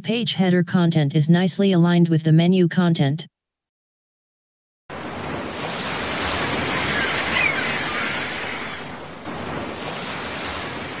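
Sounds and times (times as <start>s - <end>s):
waves washing ashore: 4.9s - 11.0s.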